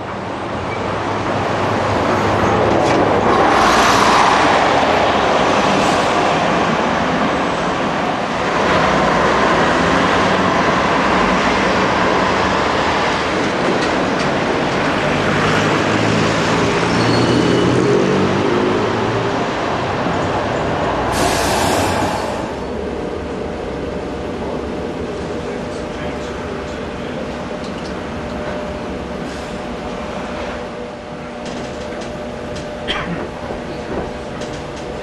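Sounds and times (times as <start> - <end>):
tram passing with motor hum: 0.0 - 35.0
tram rumbling: 0.0 - 35.0
wheels squealing on rails: 16.6 - 18.0.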